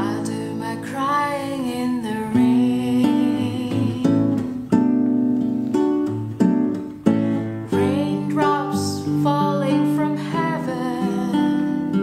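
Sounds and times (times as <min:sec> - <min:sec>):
woman singing: 0:00.0 - 0:04.9, 0:07.5 - 0:12.0
acoustic guitar fingerpicked: 0:00.0 - 0:12.0.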